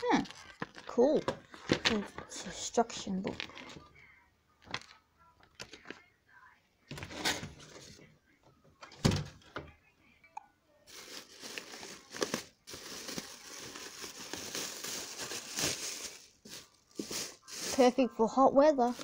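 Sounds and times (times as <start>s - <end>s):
plastic bag crinkling: 0.0s - 2.3s, 10.9s - 18.0s.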